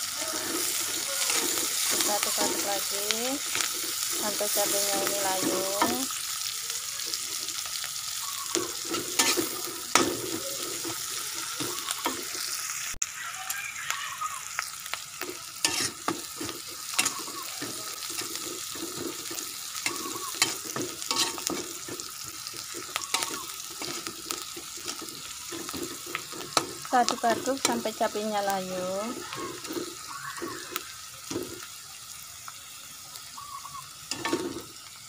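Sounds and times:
food sizzling in hot oil: 0:00.0 - 0:35.0
metal spatula scraping pan: 0:00.1 - 0:06.1, 0:08.5 - 0:12.5, 0:15.2 - 0:28.4.

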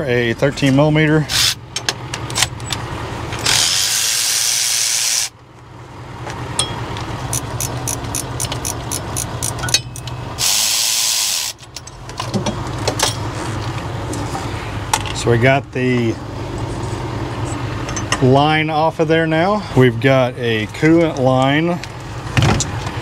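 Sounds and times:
electric ratchet running: 0:01.3 - 0:01.6, 0:03.4 - 0:05.3, 0:07.3 - 0:11.6.

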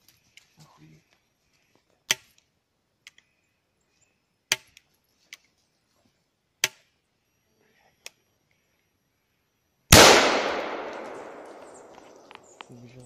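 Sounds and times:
faint clicks: 0:01.1 - 0:03.4
gunshots: 0:09.9 - 0:12.4.

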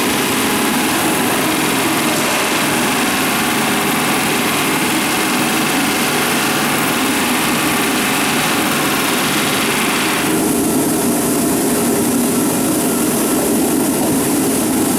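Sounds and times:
pneumatic rivet gun hammering: 0:00.0 - 0:10.4.

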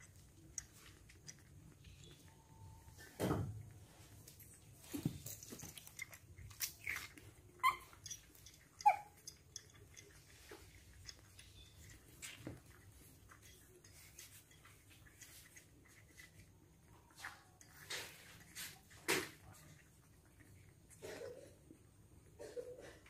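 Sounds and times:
baby monkeys squeaking: 0:06.8 - 0:07.9.

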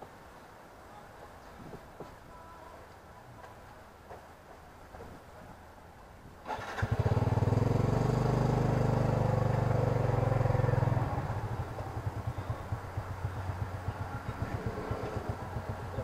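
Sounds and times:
motorcycle engine running: 0:06.5 - 0:16.0.

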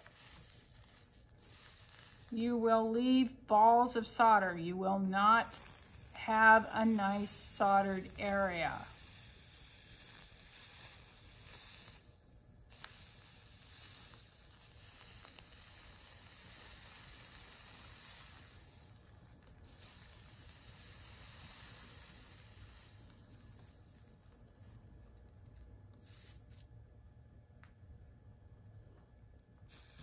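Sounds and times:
solder sizzling hiss: 0:00.0 - 0:26.8, 0:29.6 - 0:30.0.

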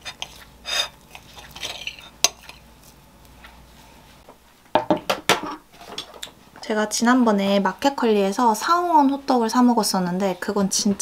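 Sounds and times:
knife scraping on plate: 0:00.0 - 0:02.7.

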